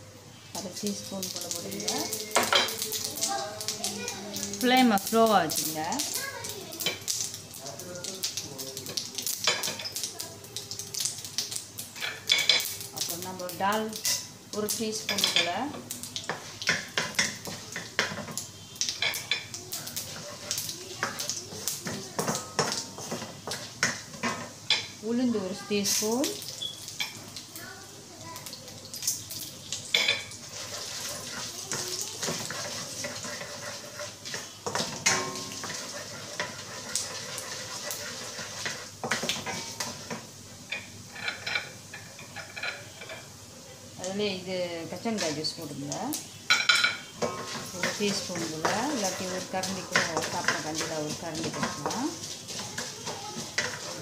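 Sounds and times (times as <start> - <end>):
oil sizzling in a wok: 0.0 - 54.0
spatula scraping a pan: 16.3 - 25.0, 30.0 - 43.3, 46.5 - 54.0.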